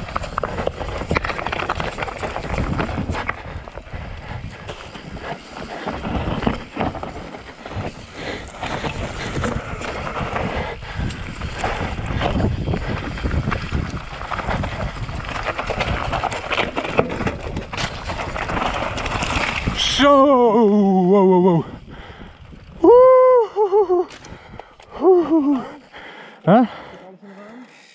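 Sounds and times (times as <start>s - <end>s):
bike rattling and knocking: 0.0s - 20.0s
wind rushing over microphone: 0.0s - 20.2s
tyres rolling over dirt and stones: 0.0s - 21.0s.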